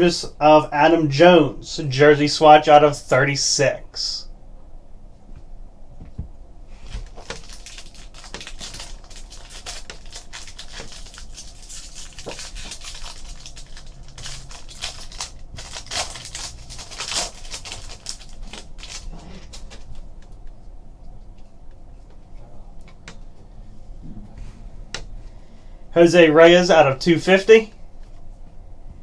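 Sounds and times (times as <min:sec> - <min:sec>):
foil wrapper crinkling: 0:06.8 - 0:20.5.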